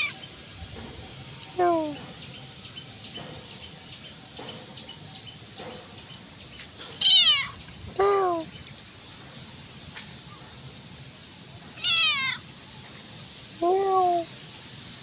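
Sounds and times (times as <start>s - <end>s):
cat meowing: 7.0s - 7.6s, 11.8s - 12.4s.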